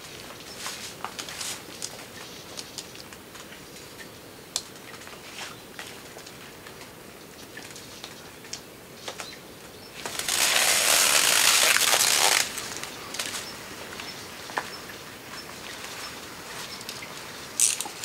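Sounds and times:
strip pulled off a roll rustling: 10.0s - 13.4s.

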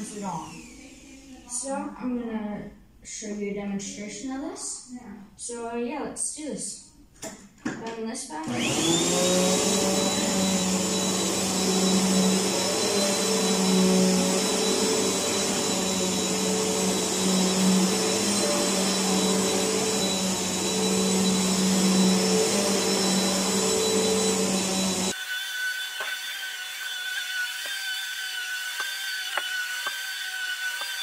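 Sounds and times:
vacuum cleaner on carpet: 0.0s - 1.7s, 8.4s - 31.0s.

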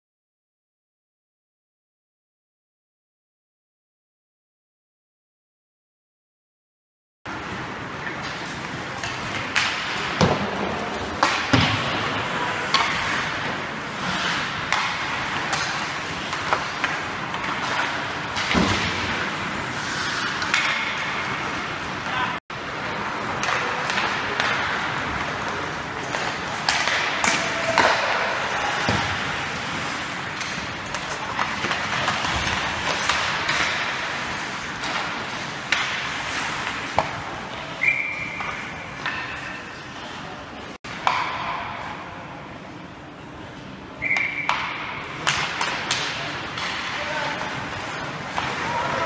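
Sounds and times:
skates scraping ice: 7.4s - 41.2s, 45.2s - 49.0s
pucks clacking off sticks and boards: 8.0s - 22.2s, 23.2s - 40.2s, 40.9s - 42.0s, 44.0s - 49.0s.

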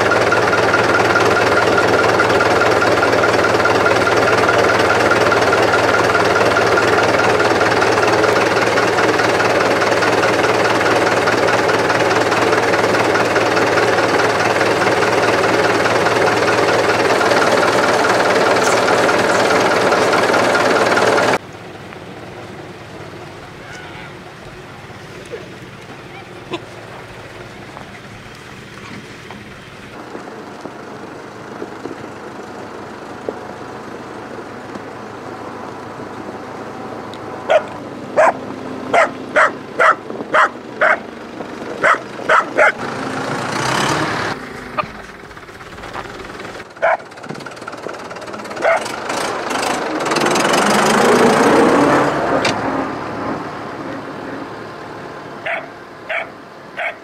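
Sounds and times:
vehicle engine passing: 0.0s - 57.0s
dog barking: 37.5s - 41.0s, 41.8s - 42.8s, 46.8s - 47.1s, 48.6s - 48.9s, 55.4s - 57.0s.

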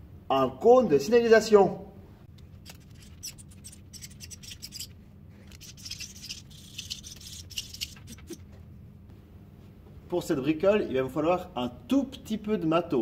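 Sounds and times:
low steady hum: 0.0s - 13.0s
marker scratching on cardboard: 2.6s - 8.4s.

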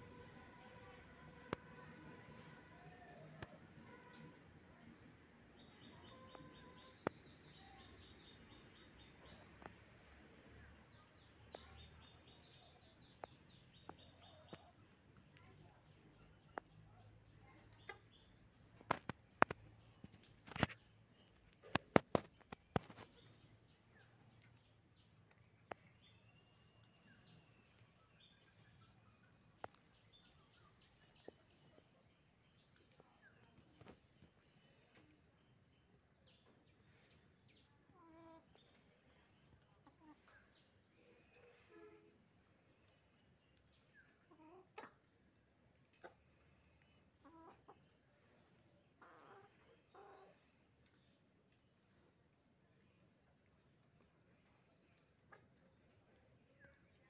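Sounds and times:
chickens clucking faintly: 0.0s - 57.0s
distant birds chirping: 17.6s - 57.0s.

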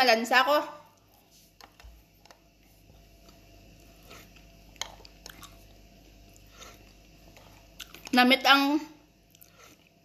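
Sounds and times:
person chewing food: 1.0s - 8.2s, 9.2s - 10.0s.

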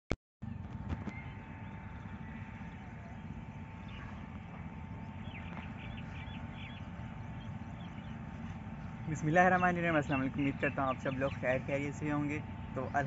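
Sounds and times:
faint hum: 0.4s - 13.0s
bird chirps: 1.0s - 13.0s.

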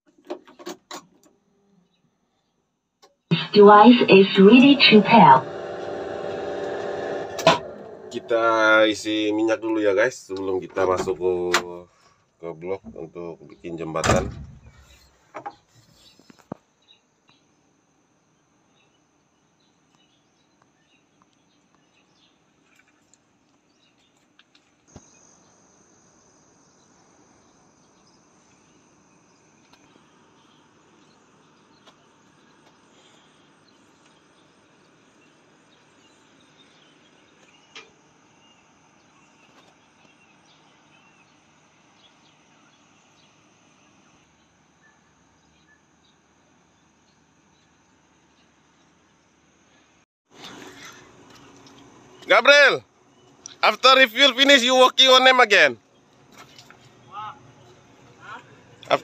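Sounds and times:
insects chirping: 24.9s - 31.4s.

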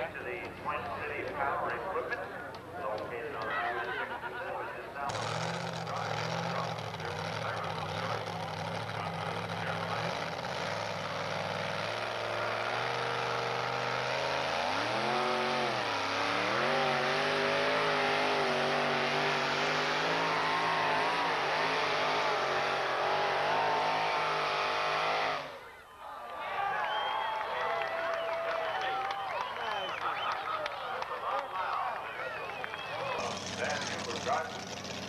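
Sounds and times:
truck engine revving under load: 5.0s - 25.7s, 32.6s - 35.0s.

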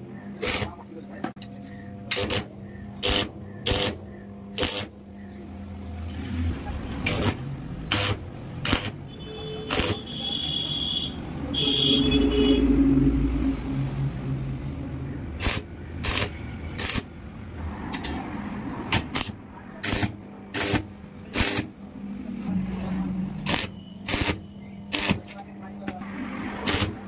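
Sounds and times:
arc welder crackling: 0.4s - 0.8s, 2.1s - 5.1s, 6.0s - 11.0s, 15.4s - 17.2s, 18.9s - 21.9s, 23.4s - 25.4s, 26.6s - 27.0s.

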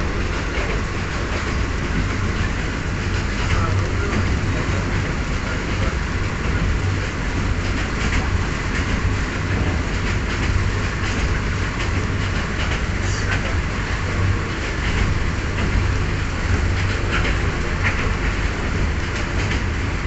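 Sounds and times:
train rumbling and rushing: 0.0s - 20.0s
wheels clicking over rail joints: 0.0s - 20.0s.

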